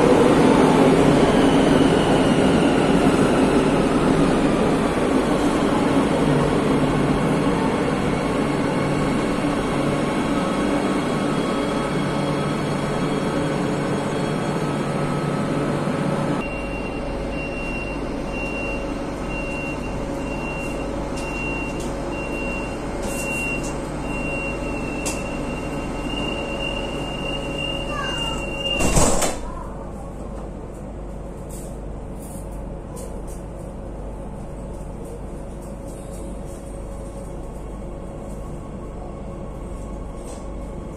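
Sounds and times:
train rushing: 0.0 - 16.4
low train equipment hum: 0.0 - 40.9
high door warning beeps: 16.4 - 29.2
sliding doors shutting thump: 28.7 - 29.4.

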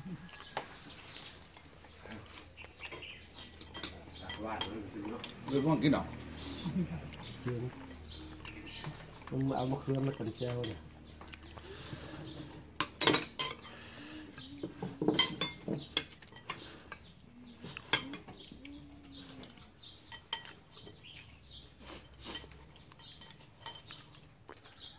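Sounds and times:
cutlery clinking against bowls: 0.4 - 6.4, 7.1 - 11.2, 12.2 - 24.6.

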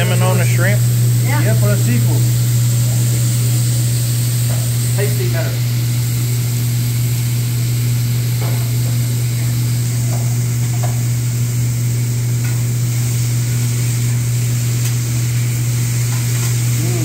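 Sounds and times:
food sizzling on a griddle: 0.0 - 17.0.

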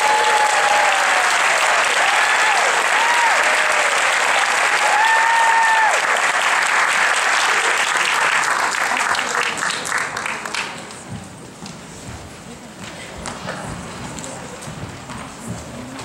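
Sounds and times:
person cheering: 0.0 - 4.0, 4.7 - 6.0
audience applauding: 0.0 - 11.0.

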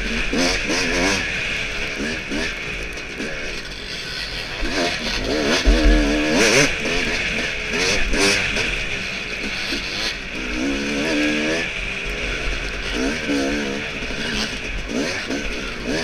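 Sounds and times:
dirt bike engine revving: 0.0 - 16.0
heavy bumps: 5.6 - 6.3
wind noise on microphone: 5.6 - 6.7.

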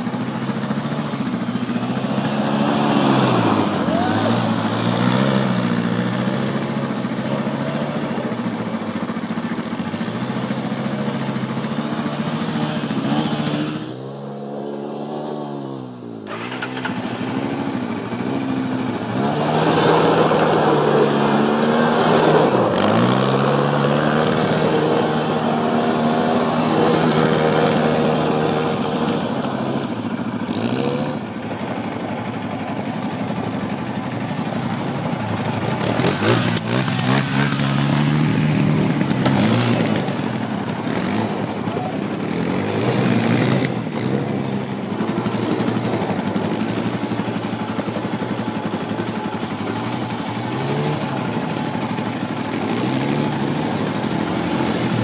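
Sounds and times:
atv engines revving: 0.0 - 55.0
tires sliding on gravel: 16.3 - 55.0.

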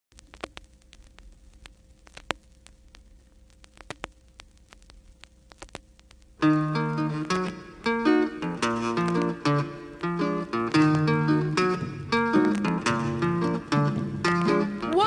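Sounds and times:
faint steady hum: 0.1 - 15.0
vinyl clicks and pops: 0.1 - 15.0
strummed acoustic guitar: 6.4 - 15.0.

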